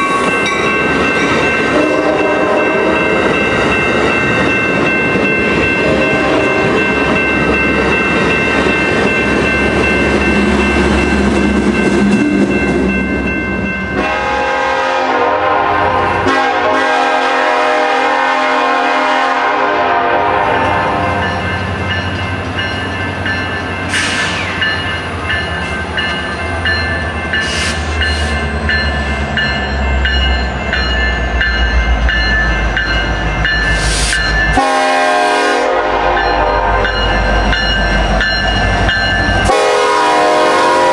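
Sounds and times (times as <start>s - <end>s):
locomotive air horn blasts: 1.7s - 2.9s, 6.0s - 6.6s, 14.0s - 21.2s, 34.0s - 36.9s, 39.5s - 40.9s.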